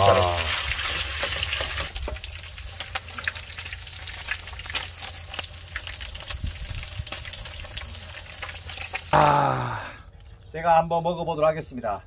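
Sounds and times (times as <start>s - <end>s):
pork frying in fat: 0.0s - 9.6s.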